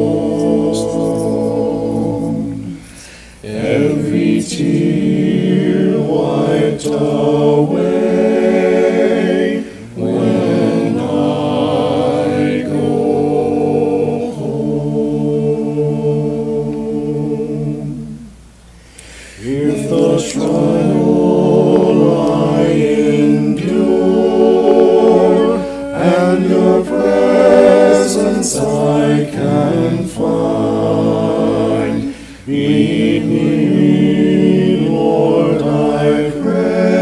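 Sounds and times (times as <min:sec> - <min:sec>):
choir singing a hymn: 0:00.0 - 0:37.0.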